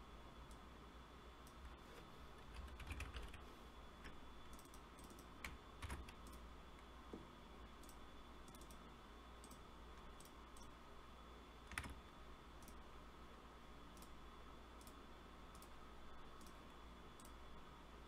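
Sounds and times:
low electrical hum: 0:00.0 - 0:18.0
keyboard typing: 0:02.4 - 0:03.4, 0:04.0 - 0:06.4, 0:11.7 - 0:12.0.

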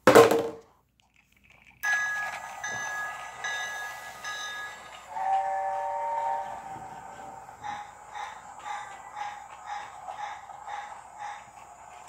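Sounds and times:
electronic train whistle: 0:01.9 - 0:11.4.

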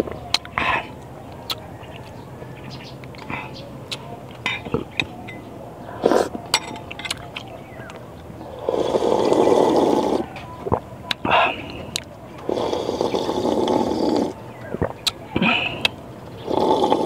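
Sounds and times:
mouth clicks and chewing: 0:00.0 - 0:17.0
person slurping broth: 0:06.0 - 0:06.4, 0:08.5 - 0:10.4, 0:12.4 - 0:14.4, 0:15.4 - 0:17.0.

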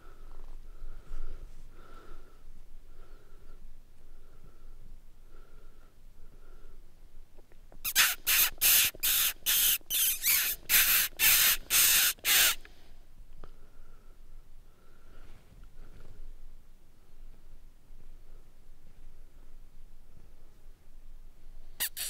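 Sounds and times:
hissy lip squeaks: 0:07.8 - 0:12.6, 0:21.8 - 0:22.0.

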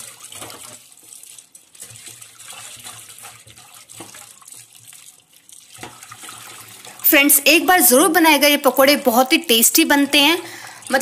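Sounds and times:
hand swishing grains in water: 0:00.0 - 0:07.0.

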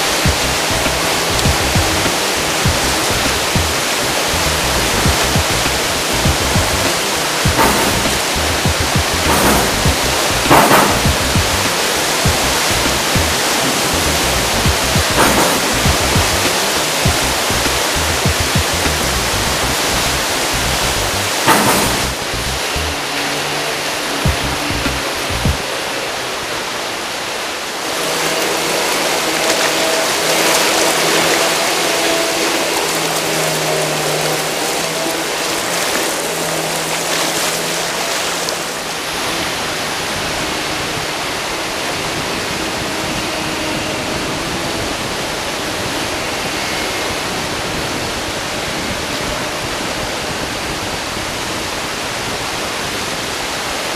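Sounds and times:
river rapids rushing: 0:00.0 - 0:53.9
low steady hum: 0:00.1 - 0:23.0, 0:24.2 - 0:25.6.

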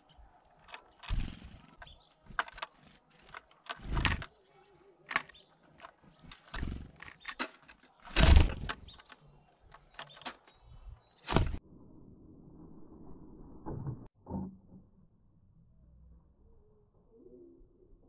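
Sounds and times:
bird wing flutters: 0:00.0 - 0:04.3, 0:05.1 - 0:09.1, 0:11.2 - 0:11.6
sharp clicks: 0:00.0 - 0:04.4, 0:05.0 - 0:11.6.

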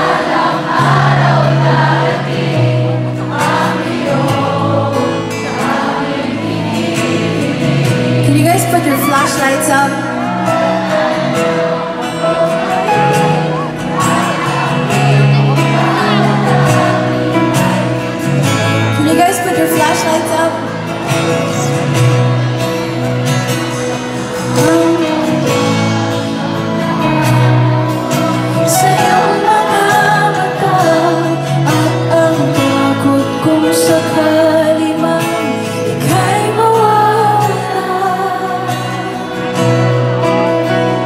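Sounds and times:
acoustic guitars: 0:00.0 - 0:41.0
woman singing a ballad: 0:08.0 - 0:10.3, 0:18.9 - 0:21.0, 0:28.3 - 0:39.5.

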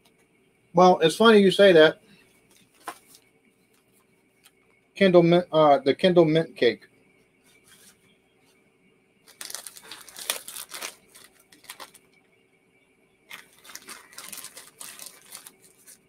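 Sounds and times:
snack wrapper crinkling and tearing: 0:09.3 - 0:12.1, 0:13.3 - 0:16.0.

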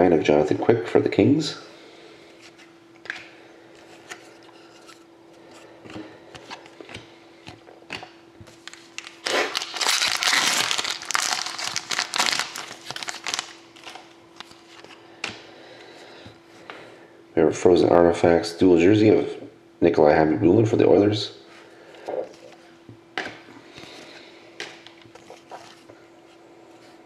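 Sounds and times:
foil wrapper crinkling and tearing: 0:08.5 - 0:14.8.

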